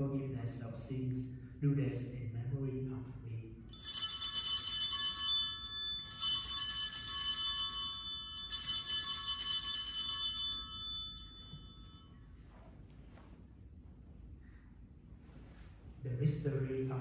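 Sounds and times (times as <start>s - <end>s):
altar bells ringing: 3.7s - 12.9s.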